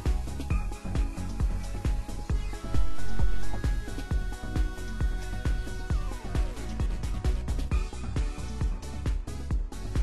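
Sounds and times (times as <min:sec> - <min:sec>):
electronic music with kick drum: 0:00.0 - 0:10.0
downward sliding synth tone: 0:02.4 - 0:04.5.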